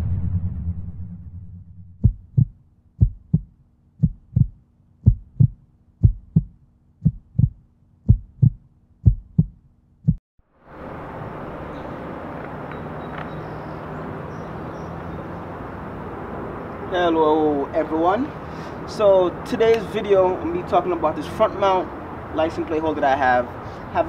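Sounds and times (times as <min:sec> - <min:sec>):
heartbeat thumps: 0:01.8 - 0:10.2
outdoor background hiss: 0:09.8 - 0:24.0.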